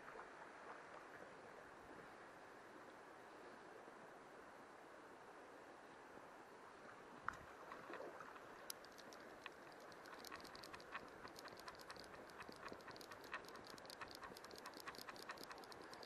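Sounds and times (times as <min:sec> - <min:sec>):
faint river hiss: 0:00.0 - 0:16.0
fly reel ratchet clicking: 0:08.7 - 0:16.0.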